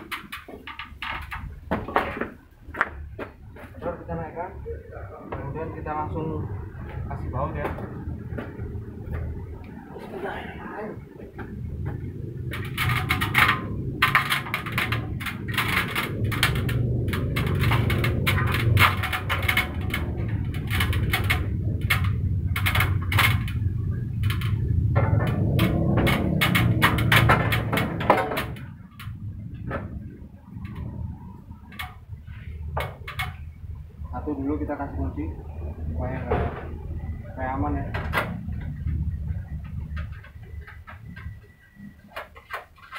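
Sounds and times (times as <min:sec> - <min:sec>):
steady low rumble: 0:00.0 - 0:42.0
sheet metal clanking and scraping: 0:11.4 - 0:34.3.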